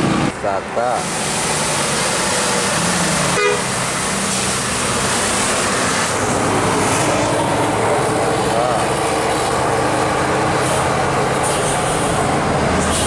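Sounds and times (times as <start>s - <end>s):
engine and road noise: 0.0s - 13.0s
bus musical air horn: 3.2s - 3.8s.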